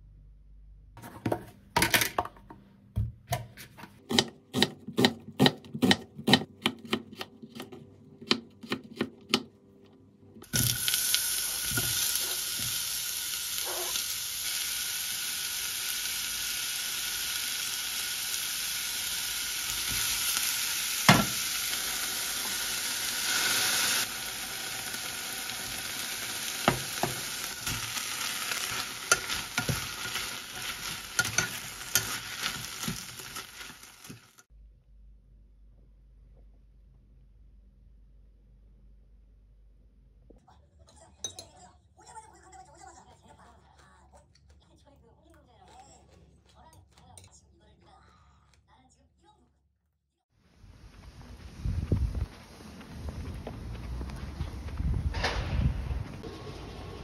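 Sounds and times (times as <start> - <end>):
knife chopping on plastic board: 3.0 - 9.5.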